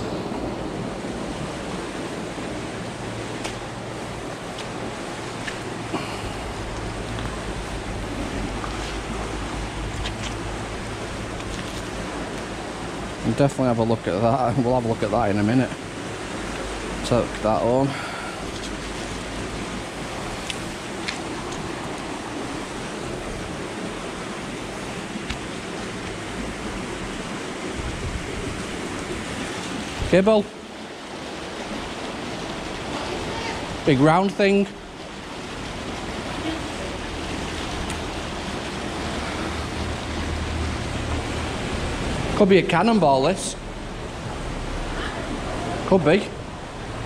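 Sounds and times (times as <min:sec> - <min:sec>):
water rushing down a channel: 0:00.0 - 0:47.0
wind noise on microphone: 0:18.4 - 0:30.2.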